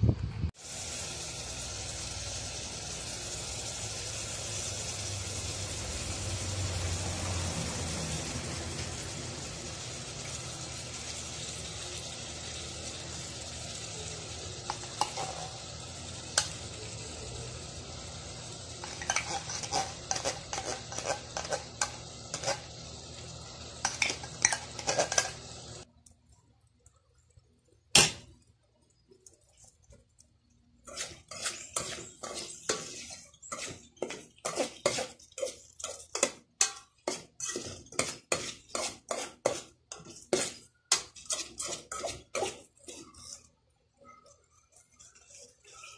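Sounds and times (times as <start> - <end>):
metal spoon clinking and scraping: 14.6 - 15.6, 18.8 - 22.8, 23.8 - 25.8, 30.8 - 43.5, 44.2 - 45.9.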